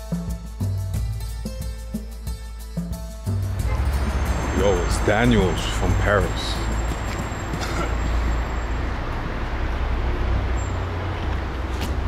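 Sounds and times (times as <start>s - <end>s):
street traffic: 3.3s - 12.0s.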